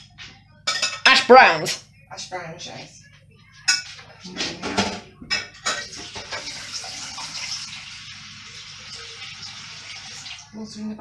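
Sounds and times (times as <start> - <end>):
glass dishes clinking: 0.6 - 1.3, 3.6 - 6.7.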